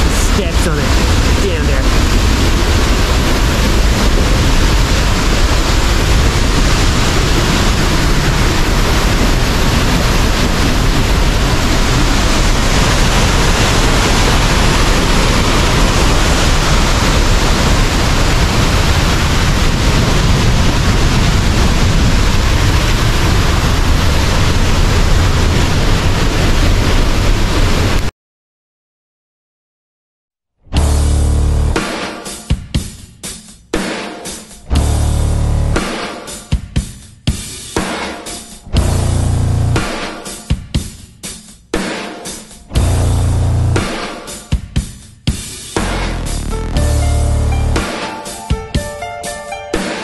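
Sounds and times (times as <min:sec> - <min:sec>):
waterfall roaring: 0:00.0 - 0:28.1, 0:45.8 - 0:50.0.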